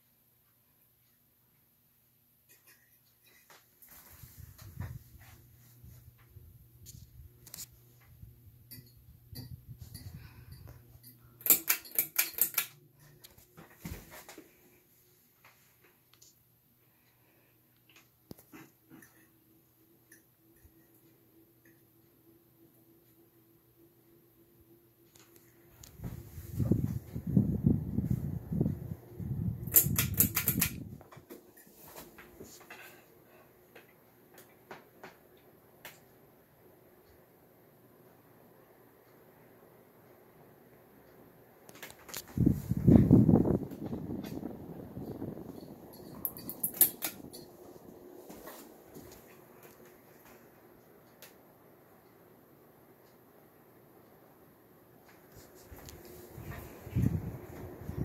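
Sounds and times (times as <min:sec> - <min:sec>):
ceiling fan motor humming: 0:03.8 - 0:58.0
sharp clicks: 0:29.6 - 0:30.8
pull chain clicking and rattling: 0:45.6 - 0:47.5.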